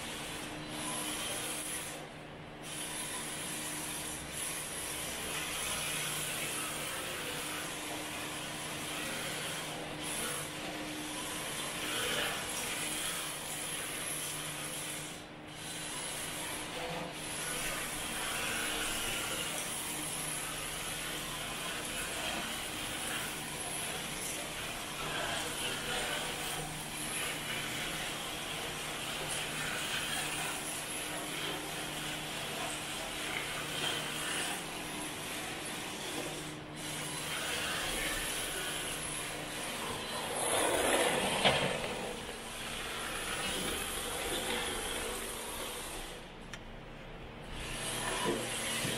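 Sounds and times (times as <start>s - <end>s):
rc car tyres scrubbing on concrete: 37.0s - 46.0s.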